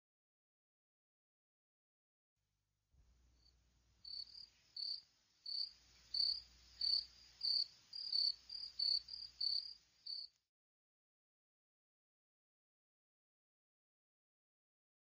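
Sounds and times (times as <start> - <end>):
faint low hum: 3.0 - 10.3
cricket chirping: 3.4 - 10.4.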